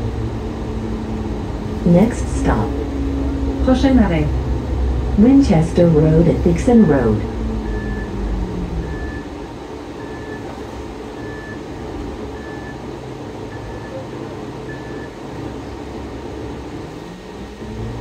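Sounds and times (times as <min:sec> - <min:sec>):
diesel bus engine idling: 0:00.0 - 0:18.0
turn signal beeps: 0:06.7 - 0:08.2, 0:08.8 - 0:09.3, 0:10.0 - 0:10.5, 0:11.2 - 0:11.6, 0:12.4 - 0:12.8, 0:13.5 - 0:14.0, 0:14.7 - 0:15.2.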